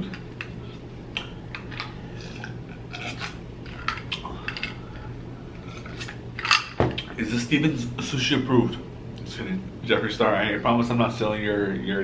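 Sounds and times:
wet mouth clicks: 1.1s - 4.3s.

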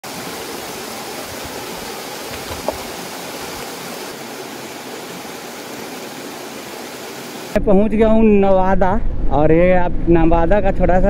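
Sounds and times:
waterfall splashing over rocks: 0.0s - 7.6s.

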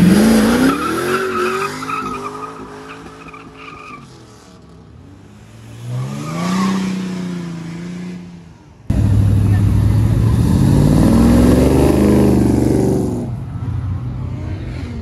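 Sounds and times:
tyres spinning and squealing: 0.3s - 4.2s
car engine revving hard: 8.9s - 13.3s
second engine revving: 8.9s - 13.3s.

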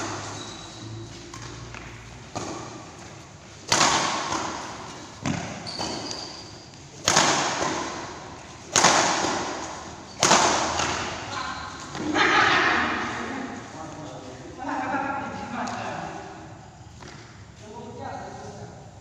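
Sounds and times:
rackets hitting shuttlecock: 1.2s - 12.2s.

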